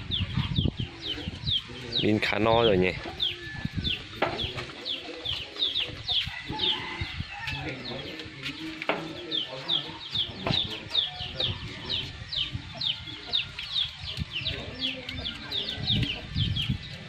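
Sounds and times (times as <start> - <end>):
chickens clucking: 0.0 - 17.0
chicks peeping: 0.0 - 17.0.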